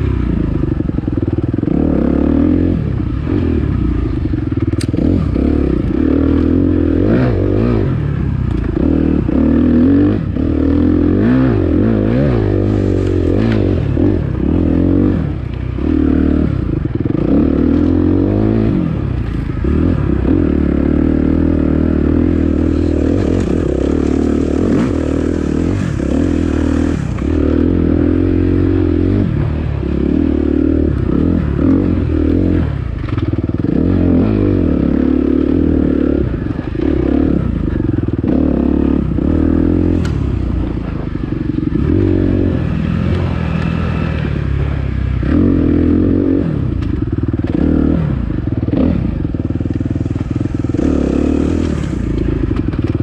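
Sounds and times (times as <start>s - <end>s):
dirt bike engine revving: 0.0s - 53.0s
bike rattling and knocking: 51.9s - 53.0s.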